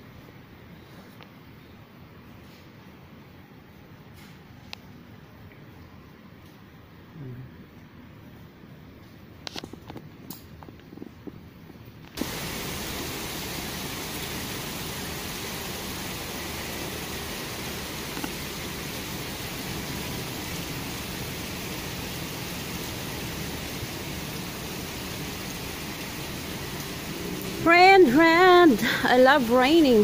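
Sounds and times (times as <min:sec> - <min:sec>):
heavy rain pouring: 0:12.2 - 0:30.0.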